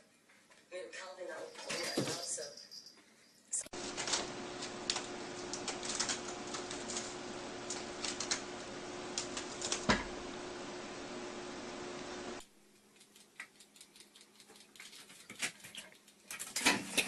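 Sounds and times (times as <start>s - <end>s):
faint steady hum: 1.4s - 14.1s
wicker basket crackling: 3.7s - 9.9s.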